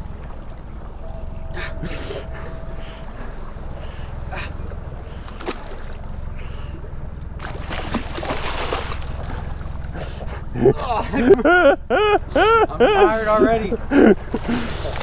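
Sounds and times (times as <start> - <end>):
water washing: 0.0 - 10.6
wind and water against hull: 0.0 - 15.0
fish thrashing and splashing: 5.1 - 6.2, 7.4 - 10.0, 14.3 - 15.0.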